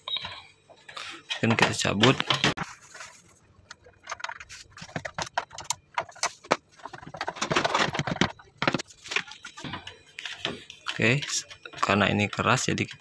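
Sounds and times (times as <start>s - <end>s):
plastic panel clicks and rattles: 3.7s - 8.8s.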